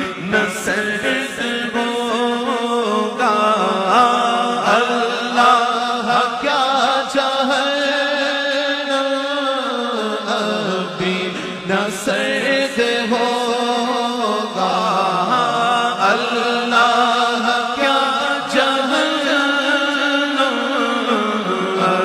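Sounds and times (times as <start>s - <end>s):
layered voices chanting: 10.3s - 22.0s.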